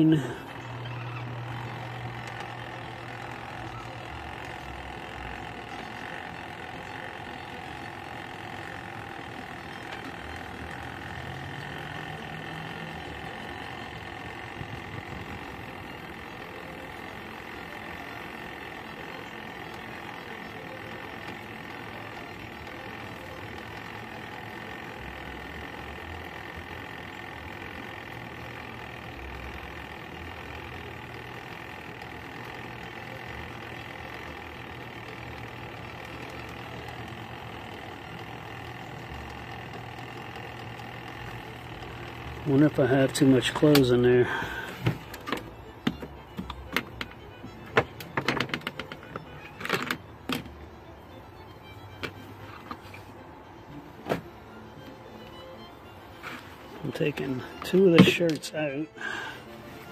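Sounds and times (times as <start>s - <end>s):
washing machine spin motor humming: 0.0s - 59.9s.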